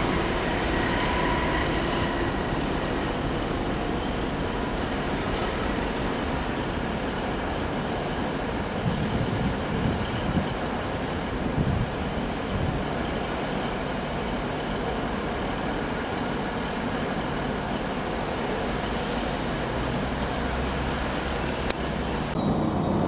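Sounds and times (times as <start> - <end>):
train rumbling: 0.0 - 23.0.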